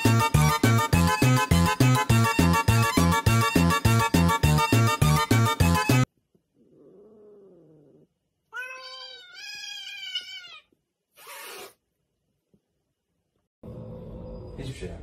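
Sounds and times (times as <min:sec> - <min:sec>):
cats yowling: 0:06.6 - 0:10.7
cat hissing: 0:08.6 - 0:11.8.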